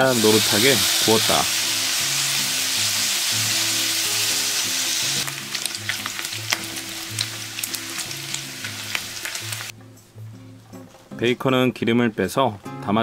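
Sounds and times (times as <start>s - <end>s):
bacon sizzling in a pan: 0.0s - 9.7s.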